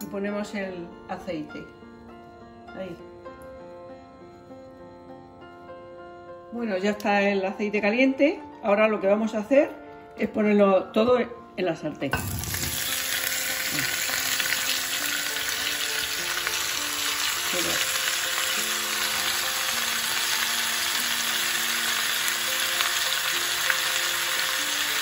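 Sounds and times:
vegetables sizzling in hot oil: 12.2s - 25.0s.

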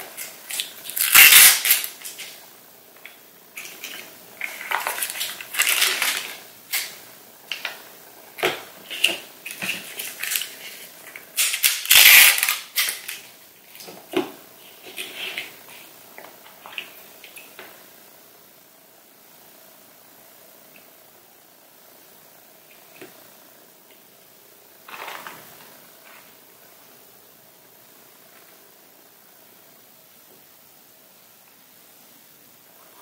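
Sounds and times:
paper packet tearing: 0.5s - 2.2s, 3.8s - 6.9s, 11.4s - 13.2s.

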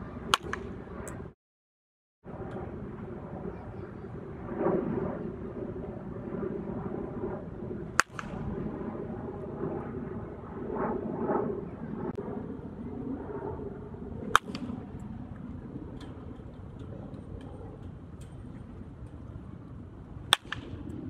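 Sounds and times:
baseball bat cracking ball: 0.3s - 1.2s, 7.9s - 8.4s, 14.2s - 15.0s, 20.2s - 20.9s
low outdoor background noise: 2.3s - 21.0s.

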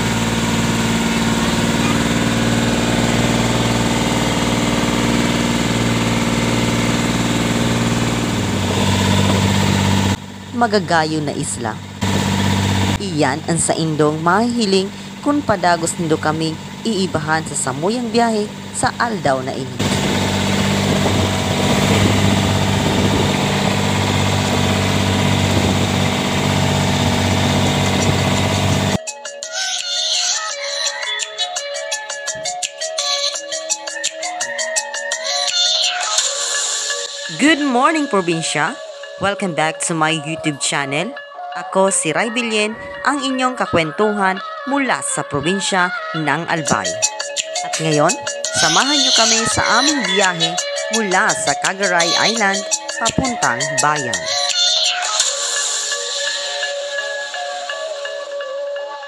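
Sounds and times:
boat engine droning: 0.0s - 29.0s, 30.5s - 59.0s
music: 0.0s - 59.0s
water splashing along hull: 19.8s - 29.0s.

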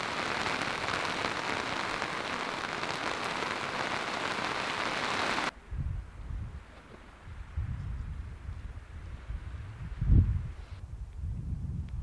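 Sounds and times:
rain on a tarp: 0.0s - 5.5s.

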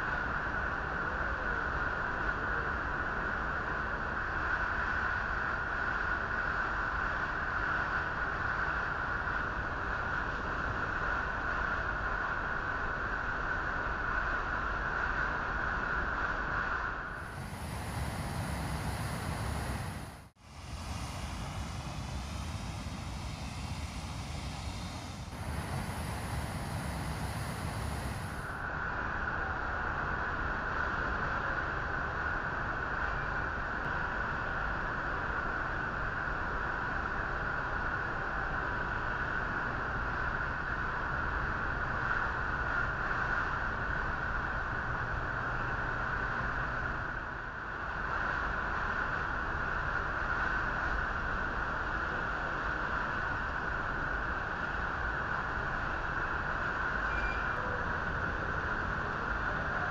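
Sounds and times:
outdoor rushing noise: 17.1s - 28.6s.

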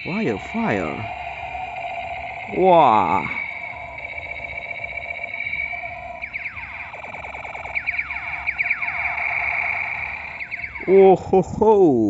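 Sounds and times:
toy gun laser zaps: 0.0s - 11.3s
steady electronic tone: 0.0s - 12.0s.

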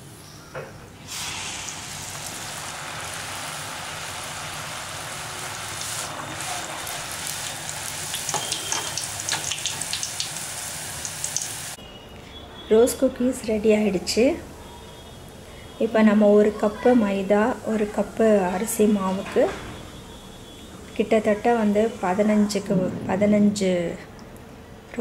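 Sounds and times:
hot oil sizzling: 1.0s - 11.8s.

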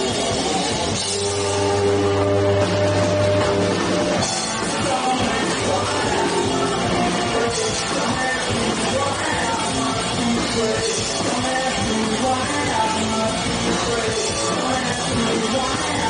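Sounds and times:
bass guitar: 0.0s - 16.0s
drum kit: 0.0s - 16.0s
electric guitars: 0.0s - 16.0s
man singing into a microphone: 4.4s - 16.0s.

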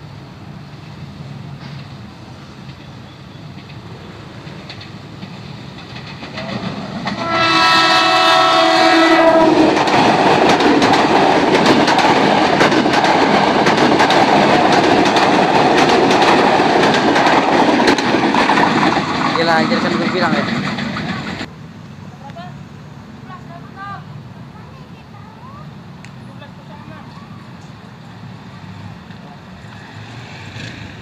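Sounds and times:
electric train rumble: 0.0s - 31.0s
wheels clattering over rail joints: 3.5s - 21.5s
train horn blast: 7.2s - 9.8s.

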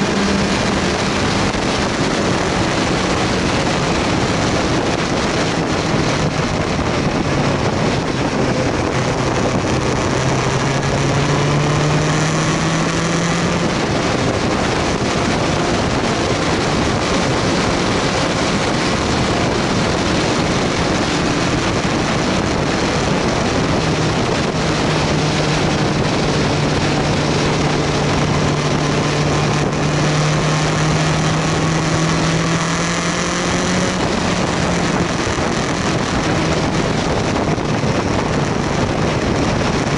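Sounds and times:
motorcycle engine running: 0.0s - 39.9s
wind rush on microphone: 0.0s - 39.9s.

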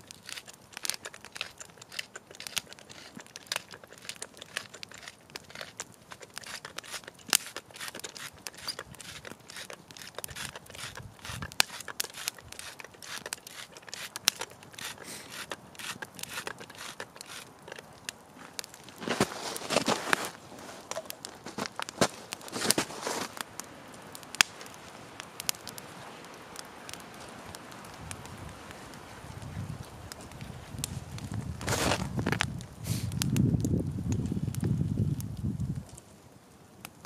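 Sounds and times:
campfire crackling and popping: 0.0s - 37.0s.

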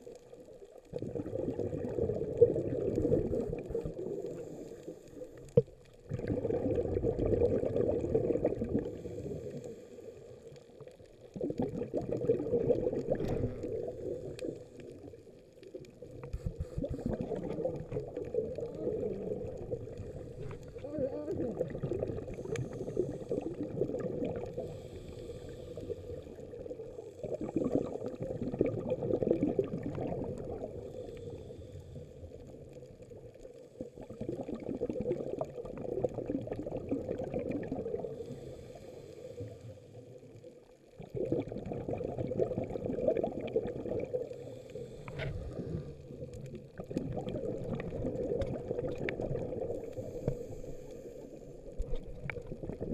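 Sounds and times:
diver breathing underwater: 1.1s - 10.6s, 16.2s - 28.3s, 29.2s - 32.5s, 37.8s - 40.0s, 44.1s - 46.4s, 47.2s - 52.9s.

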